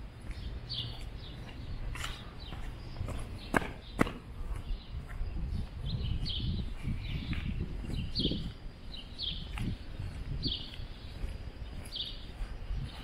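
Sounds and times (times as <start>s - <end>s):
footsteps on wet street: 0.0s - 5.3s, 6.7s - 13.0s
birds chirping: 0.0s - 13.0s.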